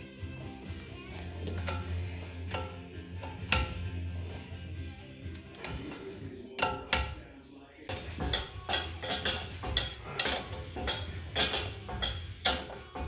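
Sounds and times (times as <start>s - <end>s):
background music: 0.0s - 13.0s
hand tools clinking on metal: 7.9s - 13.0s.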